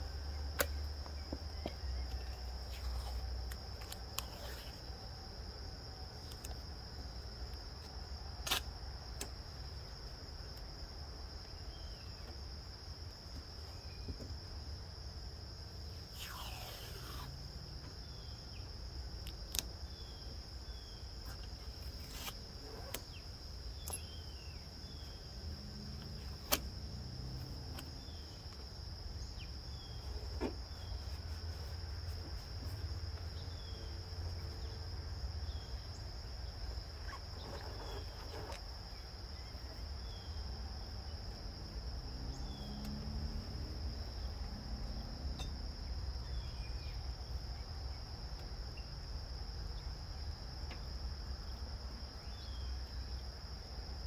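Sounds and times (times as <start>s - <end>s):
hands smoothing masking tape: 16.1s - 17.4s, 21.3s - 23.0s.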